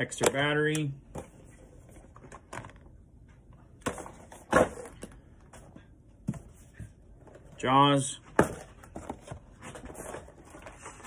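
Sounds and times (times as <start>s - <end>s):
packages knocking and clicking: 3.8s - 5.7s, 8.3s - 11.0s.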